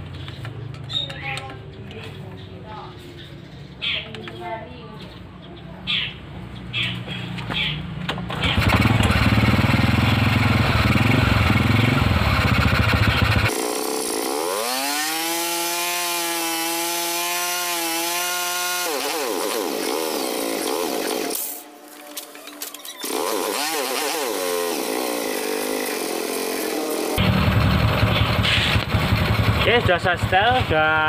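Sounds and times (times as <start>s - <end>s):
motorcycle engine running: 8.3s - 13.9s, 26.5s - 31.0s.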